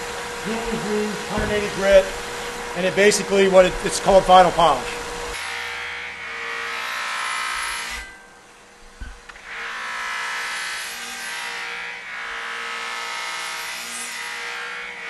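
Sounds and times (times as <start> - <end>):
short thump: 1.3 - 2.2.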